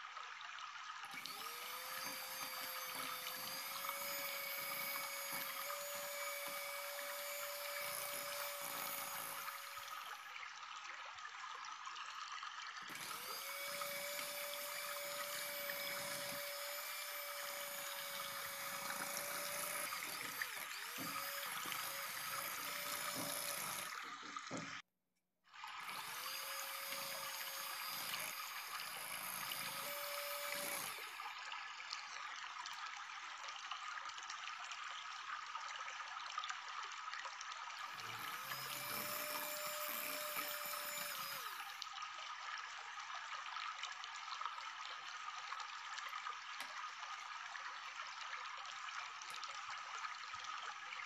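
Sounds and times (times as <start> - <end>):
electric hand mixer running: 1.1 - 10.2, 12.9 - 24.6, 25.8 - 31.2, 37.8 - 41.8.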